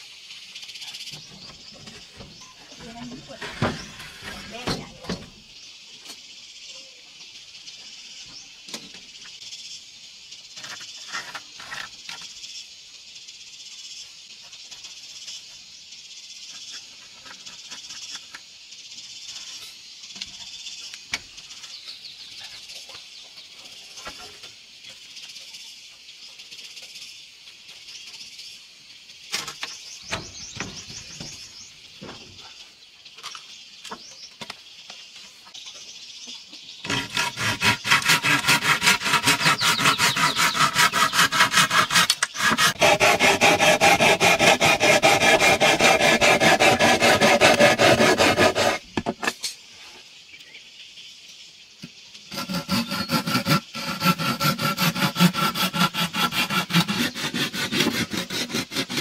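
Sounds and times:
high-pitched insect chorus: 0.0 - 42.8.

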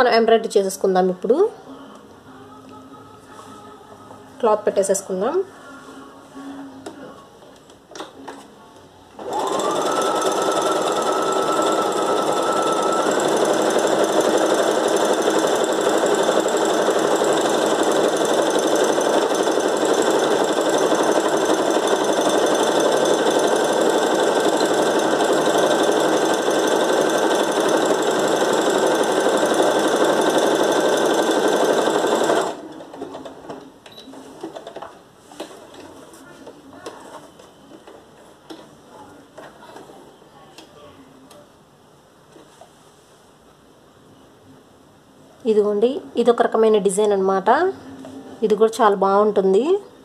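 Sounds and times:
sewing machine stitching: 9.2 - 33.6.

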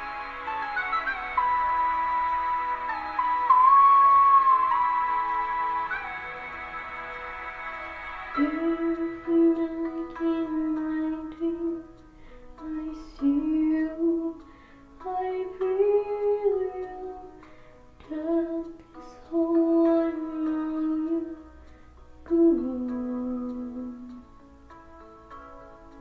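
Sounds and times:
woman singing long held notes: 8.4 - 11.8.

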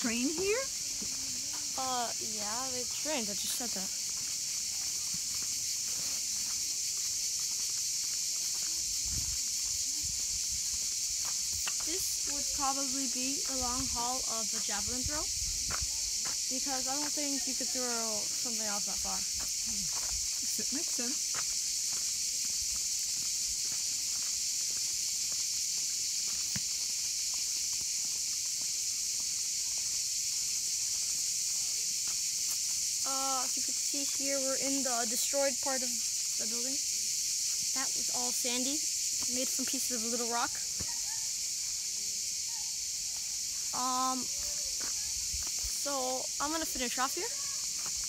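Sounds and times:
footsteps on sand: 0.0 - 14.8, 15.5 - 34.2
cicadas buzzing: 0.0 - 48.0.

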